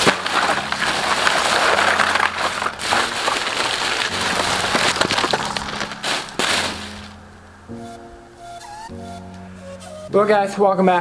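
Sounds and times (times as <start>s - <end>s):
plastic bags rustling: 0.0s - 7.3s.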